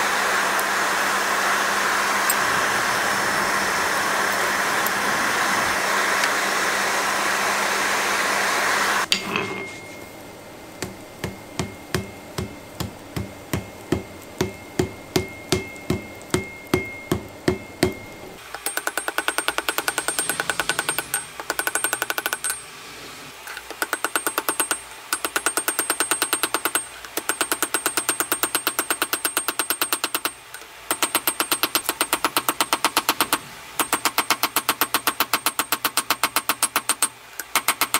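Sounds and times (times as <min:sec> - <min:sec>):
forge roaring: 0:00.9 - 0:09.0
sharp metal clang: 0:09.1 - 0:10.0
ringing hammer strikes: 0:09.1 - 0:10.1, 0:10.8 - 0:22.7
hammer blows dull thuds: 0:10.8 - 0:18.2.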